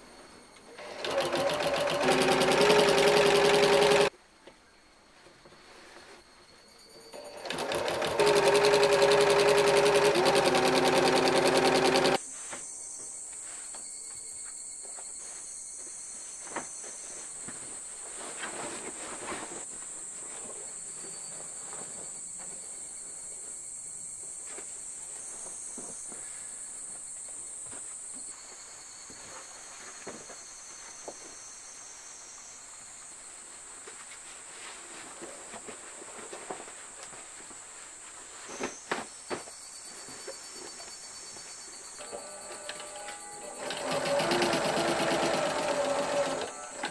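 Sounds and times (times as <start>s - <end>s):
sewing machine stitching: 0.8s - 4.1s, 7.1s - 12.2s, 42.0s - 46.9s.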